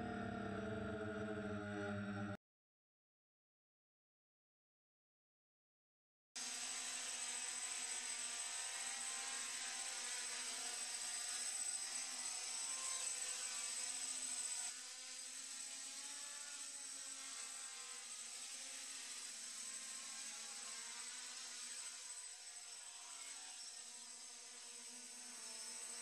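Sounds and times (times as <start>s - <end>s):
thin high whine: 0.0s - 2.4s
quadcopter motors whirring: 6.4s - 26.0s.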